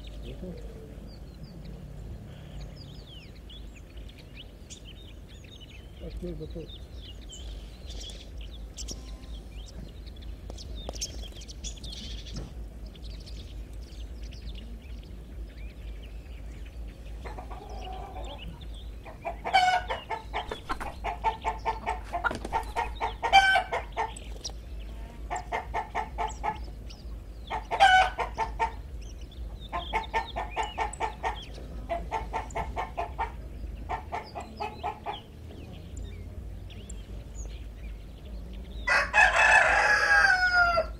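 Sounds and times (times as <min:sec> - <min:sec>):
chickens clucking: 0:00.0 - 0:40.9
chicken squawking calls: 0:19.3 - 0:24.1.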